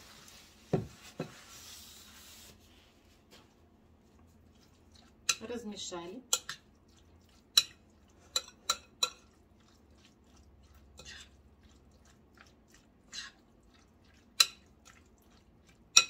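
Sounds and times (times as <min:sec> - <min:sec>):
utensil scraping salad: 0:00.0 - 0:16.0
utensil clinking against glass bowl: 0:06.3 - 0:06.7, 0:07.5 - 0:09.4, 0:14.3 - 0:15.0.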